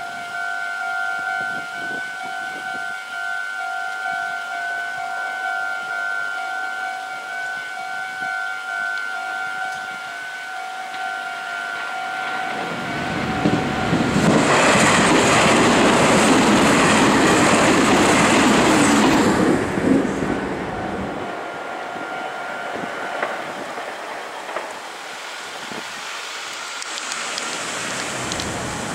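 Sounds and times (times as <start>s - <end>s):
level-crossing bell two-tone chime: 0.0s - 14.2s
electric train passing: 0.0s - 28.9s.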